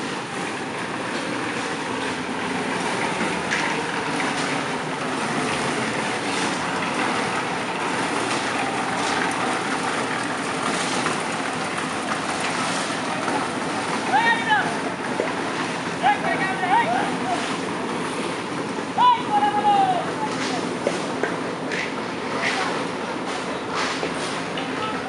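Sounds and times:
concrete mixers running: 0:00.0 - 0:25.0
mix clattering in drums: 0:00.5 - 0:16.3.

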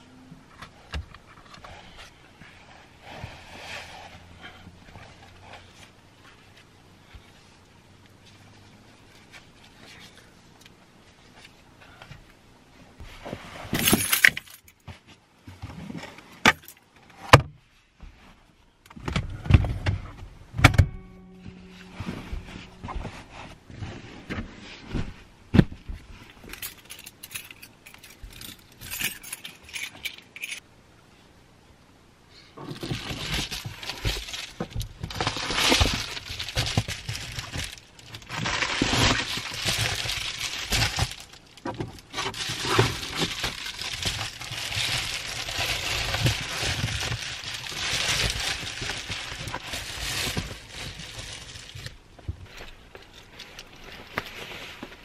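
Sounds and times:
small items clinking: 0:13.8 - 0:14.7, 0:26.5 - 0:30.6, 0:32.7 - 0:51.9.

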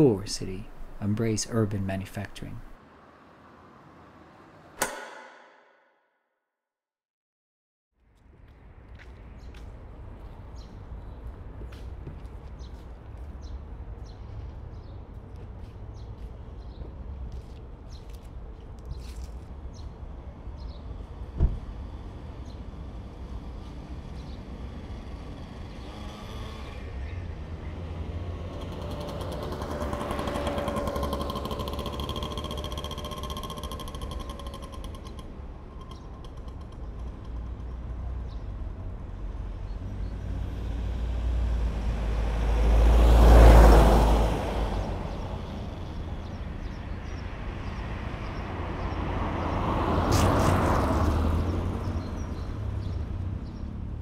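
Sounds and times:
traffic rumble: 0:00.0 - 0:04.8, 0:08.0 - 0:54.0
vehicle whine: 0:00.0 - 0:05.9, 0:08.0 - 0:54.0
sharp knock: 0:04.8 - 0:06.0.

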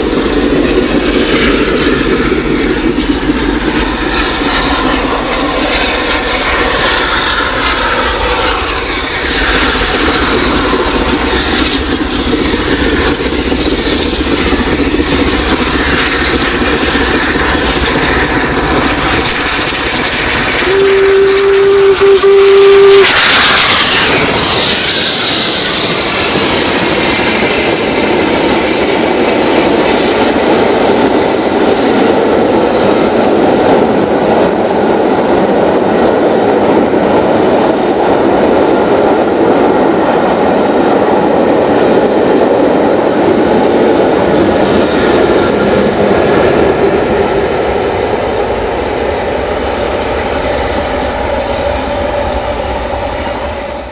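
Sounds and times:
steam locomotive exhaust: 0:00.0 - 0:53.9
steam leak hissing: 0:15.0 - 0:27.4
steam whistle: 0:20.3 - 0:25.6.

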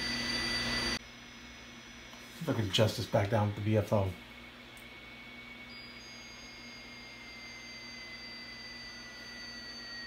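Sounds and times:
radio static hiss: 0:02.2 - 0:04.3
thin whistling tones sliding down: 0:05.4 - 0:10.0.

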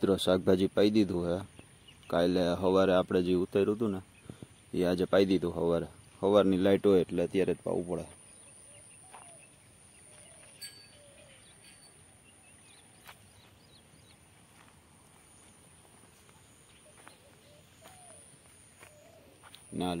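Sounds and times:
faint bird calls: 0:08.0 - 0:20.0.

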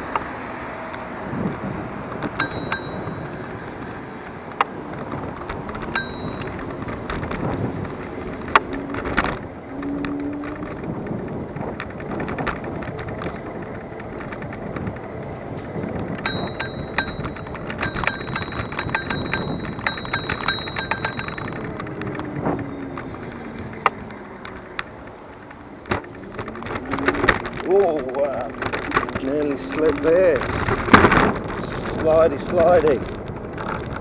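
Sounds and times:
wheels rumbling on path: 0:00.0 - 0:34.0
wind: 0:00.0 - 0:34.0
bicycle bell ringing rapidly: 0:02.4 - 0:03.4, 0:05.9 - 0:06.6, 0:16.2 - 0:21.7.

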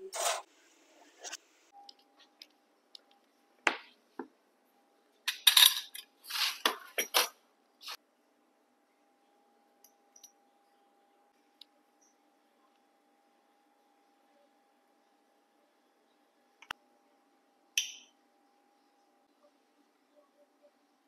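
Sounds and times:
faint steady hum: 0:07.5 - 0:21.0.

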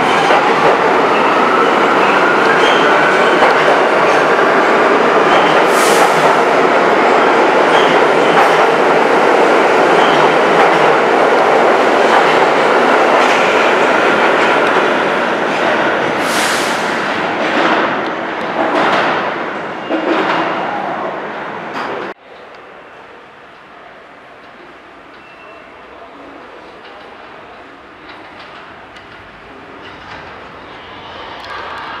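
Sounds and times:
subway train rumbling past: 0:00.0 - 0:32.0
short hisses: 0:16.2 - 0:17.0.

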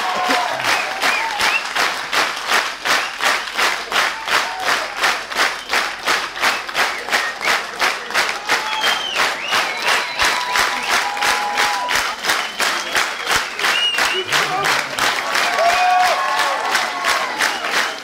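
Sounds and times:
crowd calling out: 0:00.0 - 0:01.4, 0:14.1 - 0:17.7
audience clapping in unison: 0:00.0 - 0:18.0.

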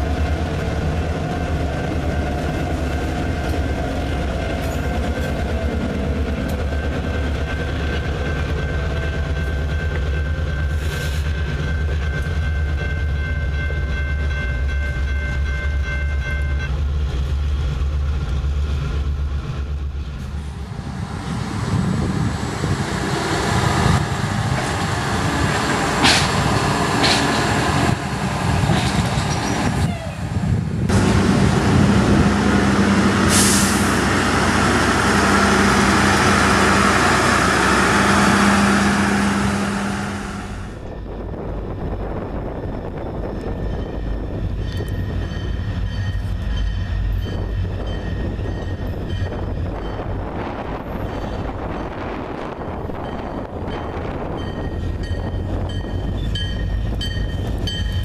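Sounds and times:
diesel locomotive engine rumble: 0:00.0 - 0:58.0
track maintenance machine engine: 0:16.1 - 0:29.9, 0:30.7 - 0:40.9.

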